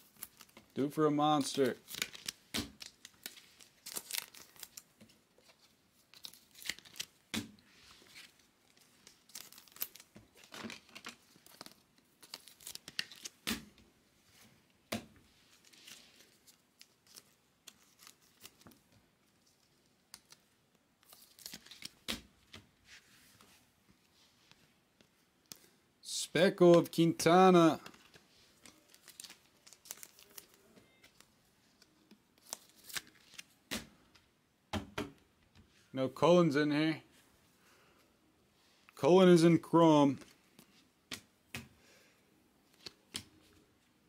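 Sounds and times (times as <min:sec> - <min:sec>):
wrappers tearing and crinkling: 0:00.0 - 0:00.8, 0:01.4 - 0:07.2, 0:08.2 - 0:13.4, 0:15.6 - 0:18.7, 0:21.0 - 0:22.1, 0:28.1 - 0:31.3, 0:32.4 - 0:33.6
cards rustling and sliding: 0:00.0 - 0:25.8, 0:26.6 - 0:34.2, 0:42.6 - 0:43.6.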